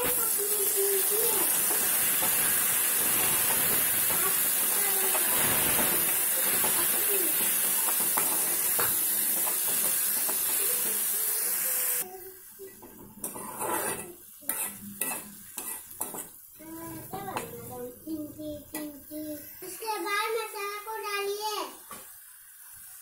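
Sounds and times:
food sizzling in hot oil: 0:00.0 - 0:23.0
spoon scraping pan: 0:01.5 - 0:11.1, 0:12.8 - 0:17.7.

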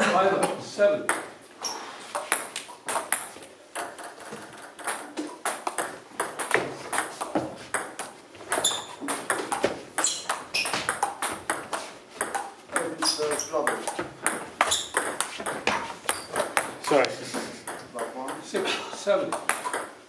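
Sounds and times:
table tennis ball clicking: 0:02.2 - 0:17.1, 0:19.3 - 0:20.0.

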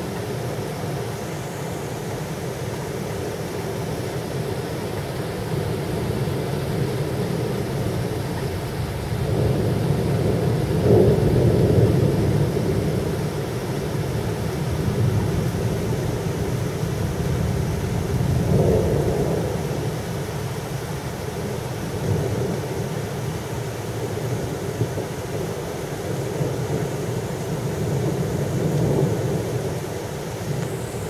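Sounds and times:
rain hiss: 0:00.0 - 0:31.0
rolling thunder: 0:09.1 - 0:13.3.

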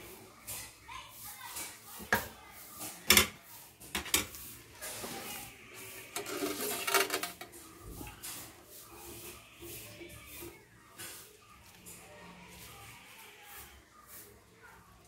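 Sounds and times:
metal spoon scraping metal pot: 0:03.1 - 0:07.6.

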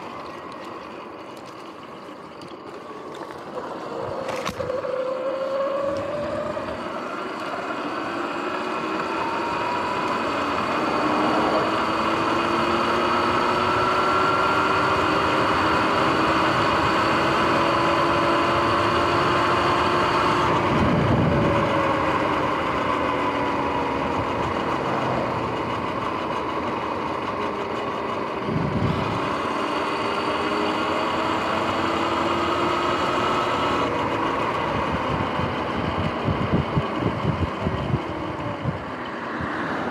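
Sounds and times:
electric motorbike motor whining: 0:00.0 - 0:39.9
passing cars whooshing: 0:10.5 - 0:12.8, 0:24.4 - 0:25.8, 0:39.1 - 0:39.9
wind noise: 0:20.4 - 0:22.4, 0:28.4 - 0:29.3, 0:34.6 - 0:39.8.

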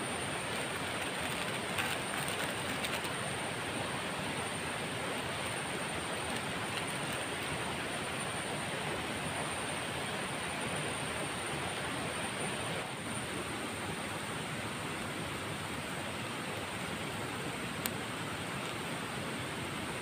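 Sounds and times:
plastic sachet crackling: 0:00.5 - 0:03.2, 0:06.2 - 0:07.5.

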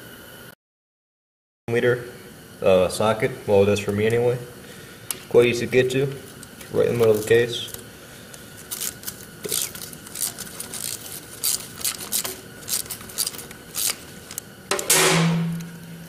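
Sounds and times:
ratchet clicking: 0:08.7 - 0:14.4.

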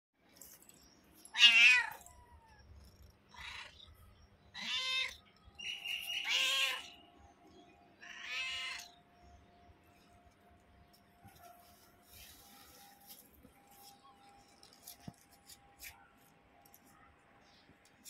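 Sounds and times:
cat meowing: 0:01.3 - 0:02.6, 0:04.5 - 0:05.2, 0:06.2 - 0:06.9, 0:08.0 - 0:08.9.

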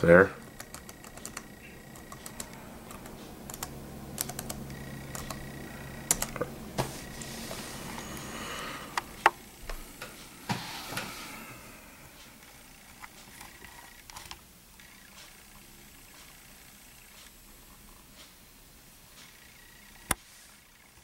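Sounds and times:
laptop keyboard typing clicks: 0:00.6 - 0:05.4, 0:06.0 - 0:06.5, 0:13.3 - 0:15.3.

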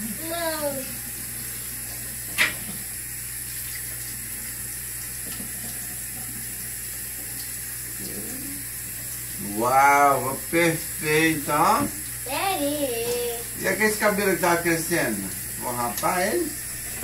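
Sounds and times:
tap running into sink: 0:01.9 - 0:02.9, 0:05.0 - 0:07.5, 0:11.6 - 0:12.1.

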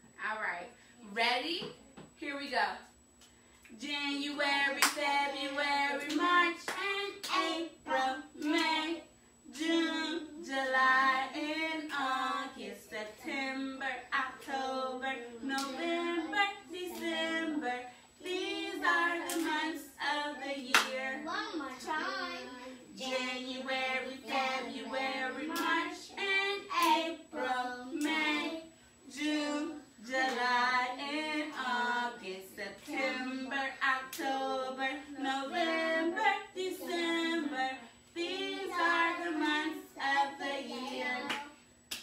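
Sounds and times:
woman and girls singing: 0:03.7 - 0:41.6
hand claps: 0:20.7 - 0:20.9, 0:41.3 - 0:42.0.

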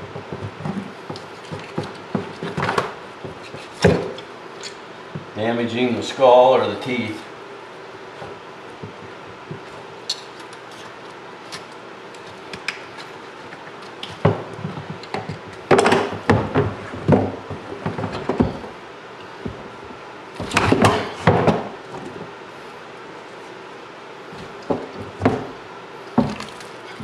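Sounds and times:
knocks and clatter in a sink: 0:26.2 - 0:26.6.

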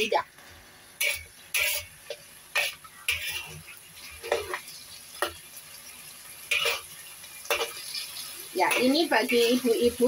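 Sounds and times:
food sizzling: 0:00.0 - 0:10.0
metal spatula scraping a wok: 0:01.0 - 0:05.4, 0:06.4 - 0:10.0.

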